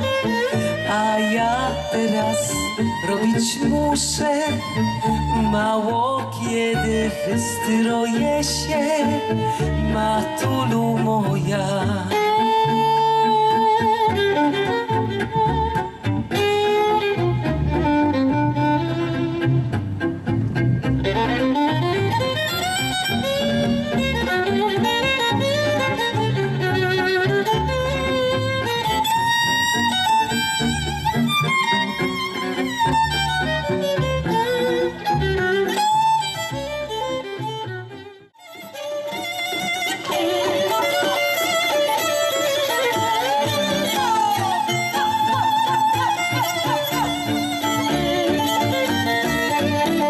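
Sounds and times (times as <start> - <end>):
fiddle melody: 0.0 - 50.0
low rhythmic accompaniment: 0.0 - 50.0
plucked strings: 0.0 - 50.0
bass line: 14.1 - 37.8.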